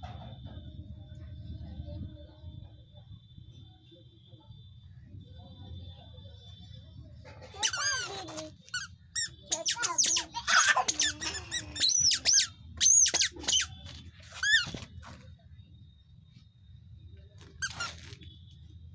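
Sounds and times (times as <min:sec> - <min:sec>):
squeaky shoes squeaking: 0:07.4 - 0:15.3, 0:17.5 - 0:18.3.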